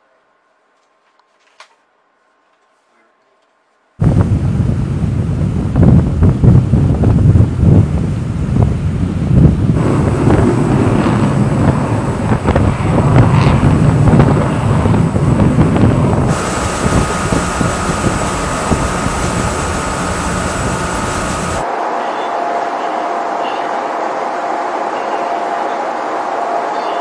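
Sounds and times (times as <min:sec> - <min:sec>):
wind buffeting microphone: 0:04.0 - 0:21.6
faint steady hum: 0:15.0 - 0:21.7
steady hiss: 0:16.3 - 0:21.6.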